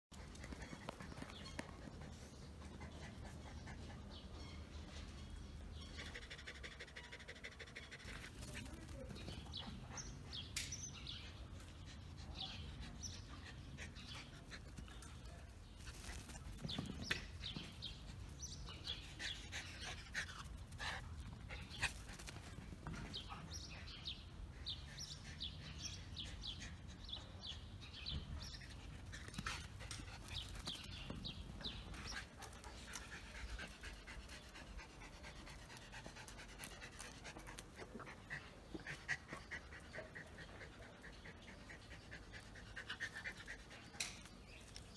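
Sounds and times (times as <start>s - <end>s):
dog panting: 0.1s - 4.3s, 28.4s - 44.2s.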